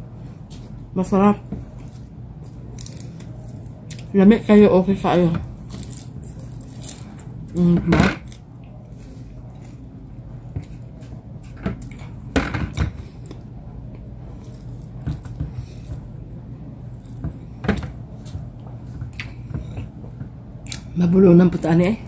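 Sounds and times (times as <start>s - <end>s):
low hum: 0.0s - 22.0s
person chewing: 10.6s - 12.2s, 18.2s - 20.0s, 20.6s - 20.9s.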